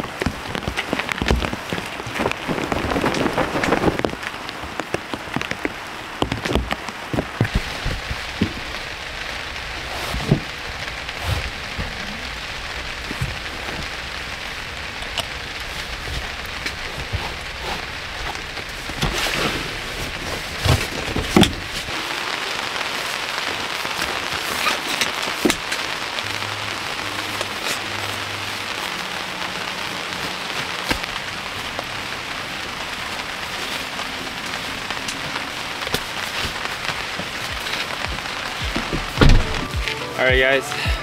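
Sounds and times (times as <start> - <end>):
steady rain: 0.0 - 41.0
knocks and thumps in a car: 38.1 - 39.9.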